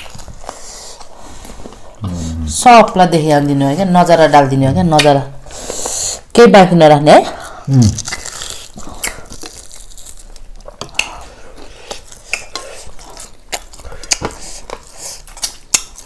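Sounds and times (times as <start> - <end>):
chewing and mouth sounds: 7.8 - 16.0.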